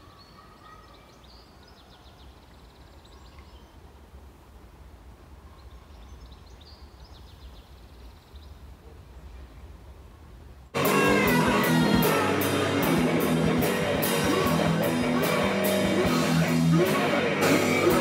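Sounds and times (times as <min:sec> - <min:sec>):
faint outdoor ambience: 0:00.0 - 0:18.0
loud rock music: 0:10.8 - 0:18.0.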